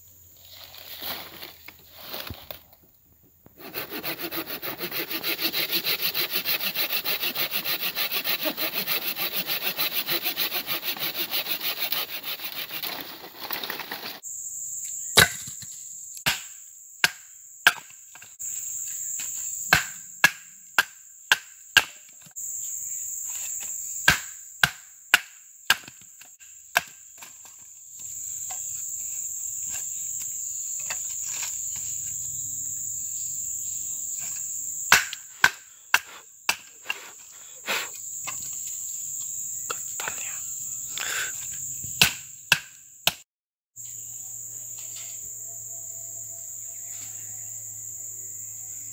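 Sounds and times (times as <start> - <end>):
high insect chorus: 0.0 - 43.1, 43.8 - 48.9
pruning saw cutting branch: 3.6 - 14.2
knife striking wooden stake: 15.2 - 18.0, 19.7 - 22.0, 24.0 - 26.1, 26.7 - 27.3, 34.9 - 37.1, 41.9 - 43.2.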